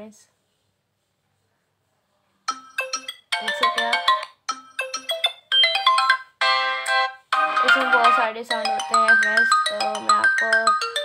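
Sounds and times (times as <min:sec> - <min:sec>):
phone ringtone chiming tunes: 0:02.5 - 0:11.0.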